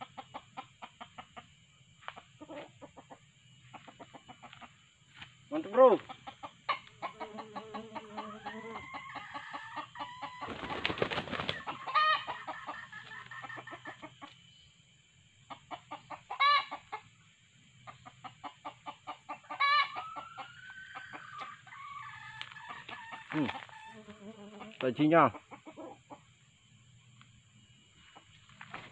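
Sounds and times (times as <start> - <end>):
junglefowl clucking: 0.0 - 14.4, 15.4 - 17.2, 17.8 - 26.5
wings flapping: 10.4 - 11.8, 28.4 - 28.9.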